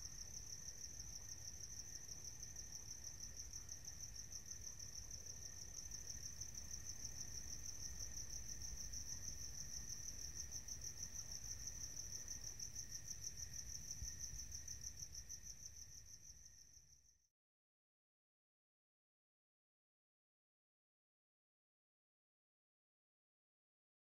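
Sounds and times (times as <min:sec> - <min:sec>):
cricket chirping: 0:00.0 - 0:17.3.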